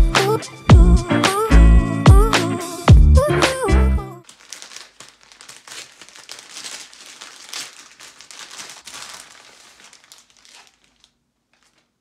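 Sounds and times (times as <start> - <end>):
paper and plastic crinkling: 4.2 - 12.0.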